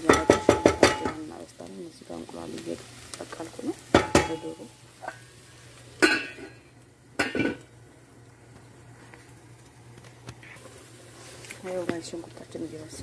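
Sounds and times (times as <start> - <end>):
kitchenware clattering: 0.0 - 1.3, 3.9 - 5.3, 6.0 - 6.6, 7.2 - 7.7.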